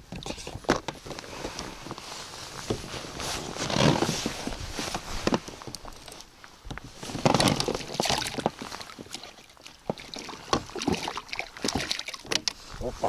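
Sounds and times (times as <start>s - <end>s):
water splashing against boat: 6.9s - 13.0s.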